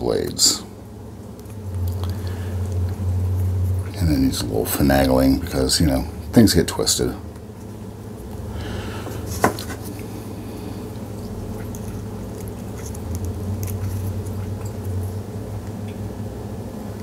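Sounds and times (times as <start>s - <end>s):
low hum: 0.0s - 17.0s
wire scratching and ticking: 1.3s - 8.5s, 10.9s - 16.0s.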